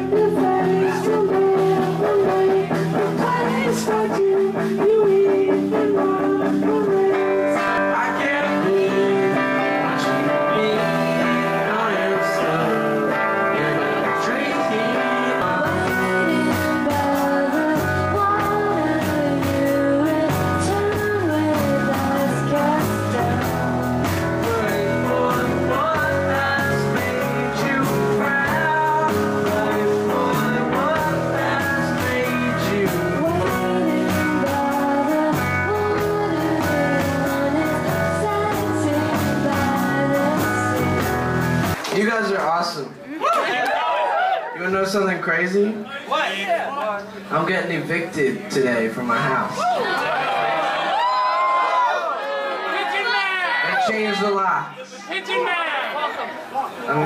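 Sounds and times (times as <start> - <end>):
man singing: 0.0 - 41.2
rock band playing: 0.0 - 42.4.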